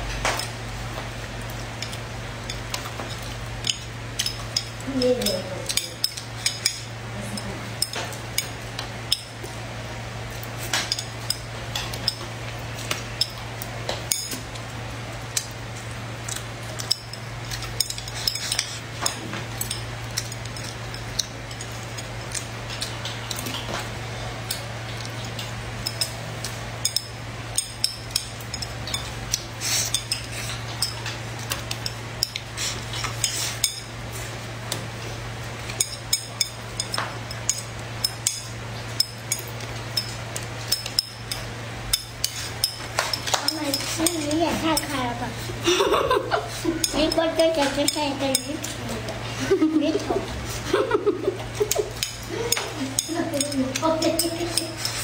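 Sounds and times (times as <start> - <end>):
steady low hum: 0.0 - 55.0
chopsticks clicking on ceramic plate: 50.8 - 55.0.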